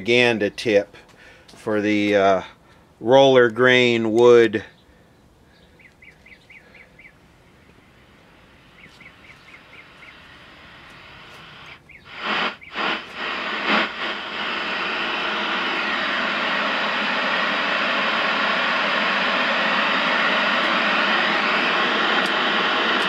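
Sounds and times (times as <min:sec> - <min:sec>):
faint chirps: 0:04.6 - 0:13.6
television static hiss: 0:07.5 - 0:23.0.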